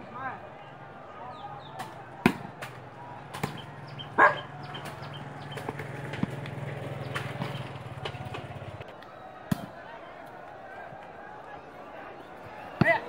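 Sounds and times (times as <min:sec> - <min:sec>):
volleyball slaps: 0:01.6 - 0:09.8, 0:12.7 - 0:13.0.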